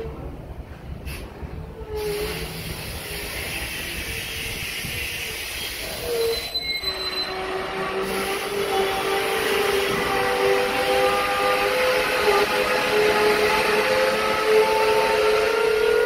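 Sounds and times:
freight train rolling rumble: 0.0 - 16.0
metallic wheel squeals: 3.4 - 9.2.

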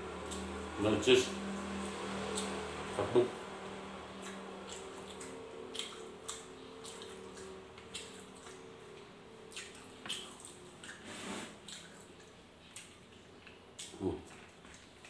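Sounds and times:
faint steady hum: 0.0 - 15.0
wet chewing and mouth smacks: 0.1 - 0.7, 1.5 - 3.0, 4.1 - 11.0, 11.6 - 15.0
soft clicks while chewing: 2.3 - 2.6, 4.2 - 11.0, 11.7 - 15.0.

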